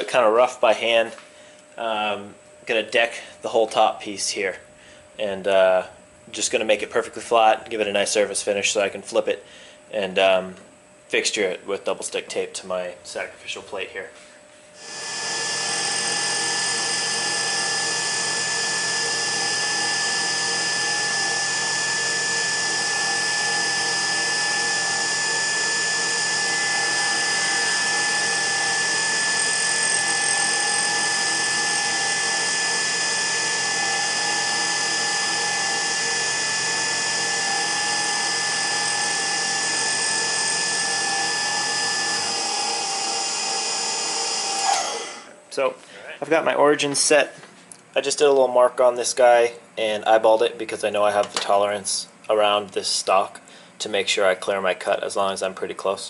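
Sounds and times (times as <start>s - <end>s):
milling machine whine: 14.8s - 45.4s.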